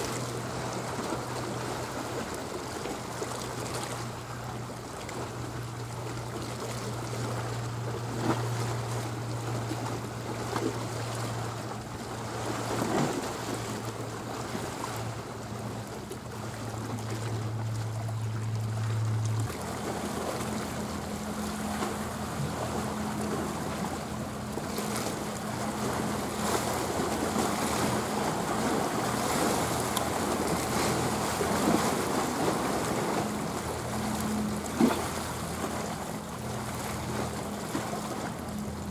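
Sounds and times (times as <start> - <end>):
ship diesel engine drone: 0.0 - 38.9
waves washing: 0.0 - 38.9
wind: 0.0 - 38.9.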